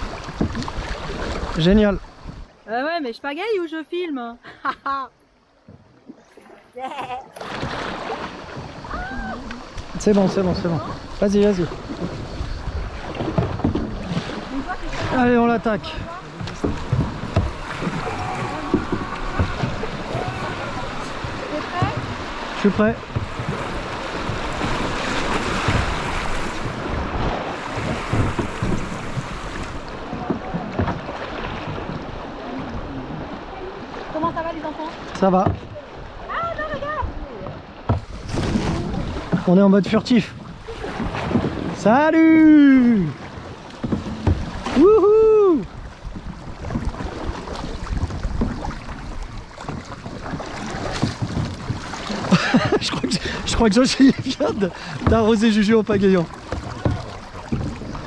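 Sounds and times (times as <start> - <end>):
paddle strokes in water: 0.0 - 3.0, 5.2 - 58.0
river water rushing and splashing: 0.0 - 4.1, 5.2 - 58.0
wind buffeting microphone: 8.6 - 34.7.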